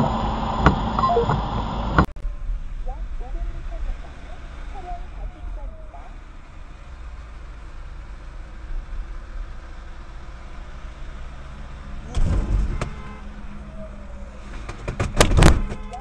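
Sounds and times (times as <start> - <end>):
car engine and road rumble: 0.0 - 16.0
loud thump: 12.0 - 13.1, 14.7 - 15.8.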